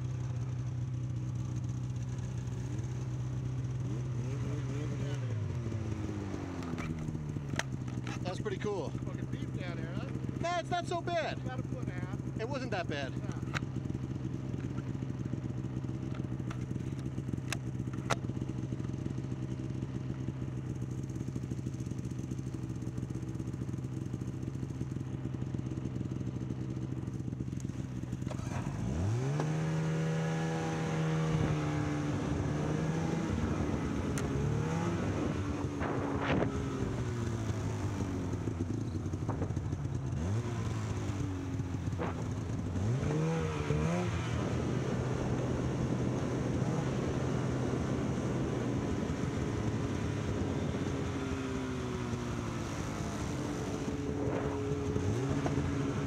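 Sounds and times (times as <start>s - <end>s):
snowmobile engine idling and revving: 0.0s - 56.0s.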